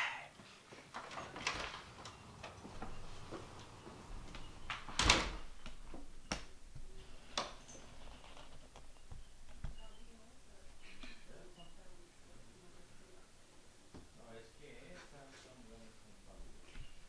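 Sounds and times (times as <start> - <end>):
wooden door shutting: 0.9 - 8.6.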